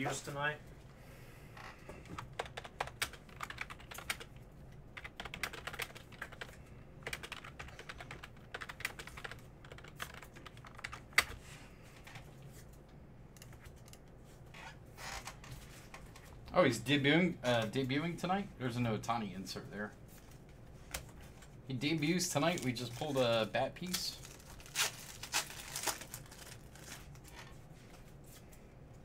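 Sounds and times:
typing on computer keyboard: 0:02.2 - 0:04.4, 0:05.0 - 0:11.3.

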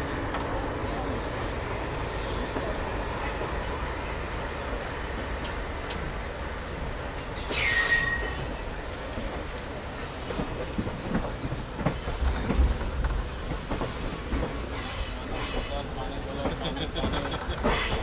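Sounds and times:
train wheels rumbling on track: 0:00.0 - 0:18.0
high wheel squeal: 0:01.4 - 0:05.5, 0:07.4 - 0:08.6.

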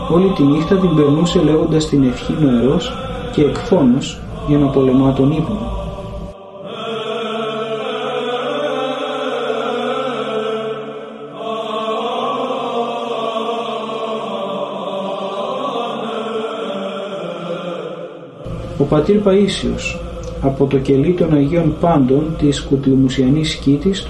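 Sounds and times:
steady low drone: 0:00.0 - 0:08.1, 0:18.4 - 0:24.0
voices singing a chant: 0:00.0 - 0:24.0.

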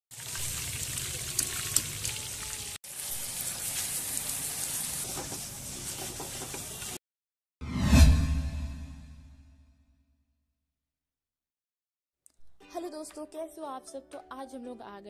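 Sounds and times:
oil sizzling in a wok: 0:00.1 - 0:07.0.

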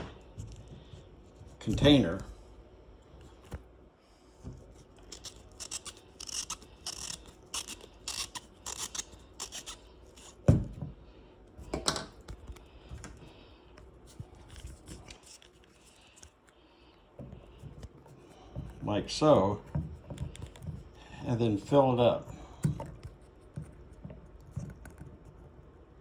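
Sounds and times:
screw cap rasping: 0:05.0 - 0:10.4.

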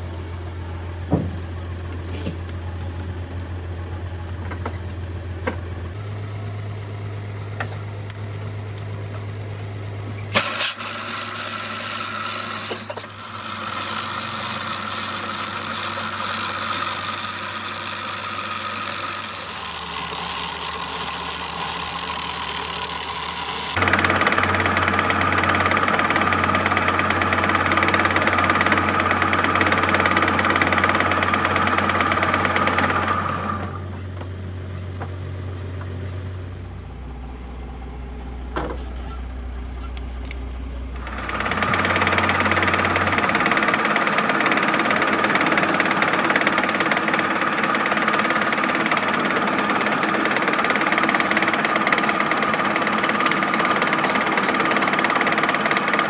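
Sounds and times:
metal lathe cutting: 0:10.4 - 0:33.8, 0:41.0 - 0:56.0.

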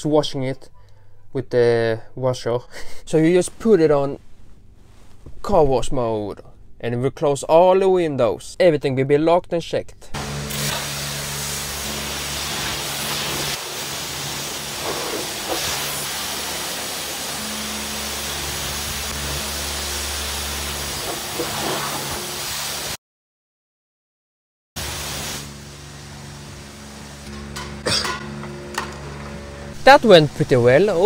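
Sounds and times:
pressure washer spraying water: 0:10.2 - 0:23.0, 0:24.8 - 0:28.4.

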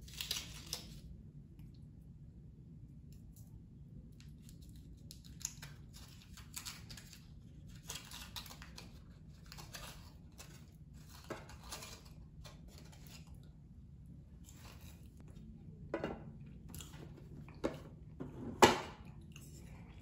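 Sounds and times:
foil wrapper crinkling: 0:00.0 - 0:01.0, 0:04.4 - 0:13.3.

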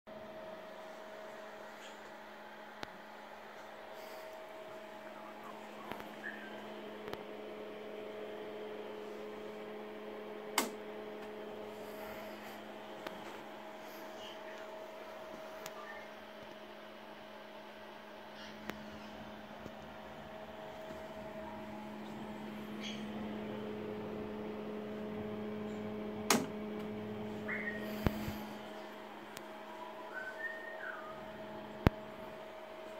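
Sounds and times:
second hum tone: 0:00.1 - 0:32.9
steady electrical hum: 0:00.1 - 0:32.9
sharp click: 0:10.6 - 0:10.8
toggle switch clicks: 0:10.6 - 0:10.8, 0:26.3 - 0:26.5.

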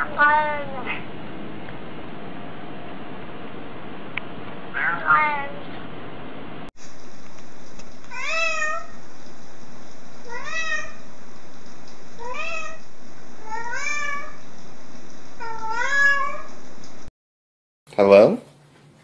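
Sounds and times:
cat meowing: 0:00.0 - 0:01.0, 0:04.7 - 0:05.6, 0:08.1 - 0:09.0, 0:10.2 - 0:11.1, 0:12.2 - 0:12.8, 0:13.4 - 0:14.5, 0:15.4 - 0:16.6.

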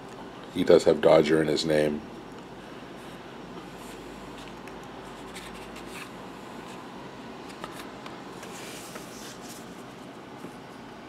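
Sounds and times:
low room hum: 0:00.0 - 0:11.0
trading cards sliding and clicking: 0:07.4 - 0:09.7.

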